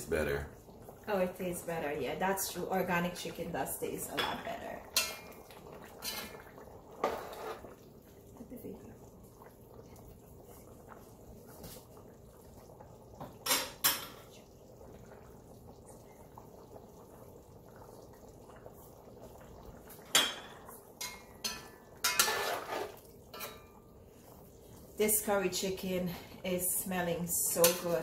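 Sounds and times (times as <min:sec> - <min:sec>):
curry simmering: 0:00.0 - 0:28.0
metal spoon scraping a pot: 0:07.0 - 0:07.6, 0:21.1 - 0:23.6.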